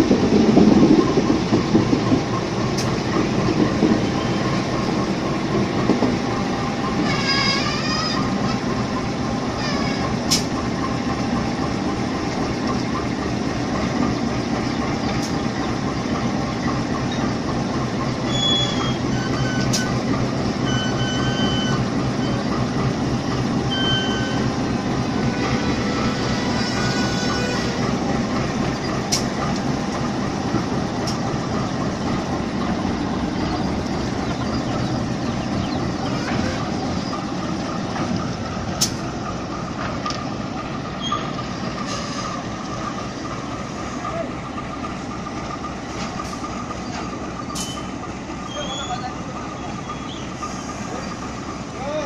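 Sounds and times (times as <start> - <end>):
diesel locomotive engine running: 0.0 - 52.0
wheel squeals on rails: 6.9 - 8.8, 9.5 - 10.5, 18.2 - 22.6, 23.7 - 27.9, 41.0 - 42.5, 46.9 - 50.8.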